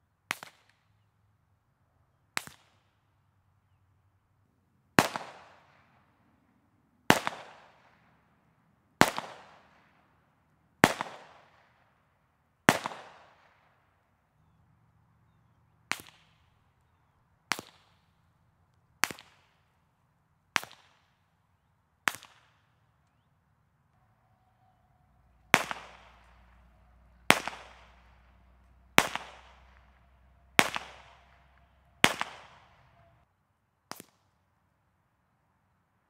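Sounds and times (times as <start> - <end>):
suppressed pistol shots: 25.4 - 33.1.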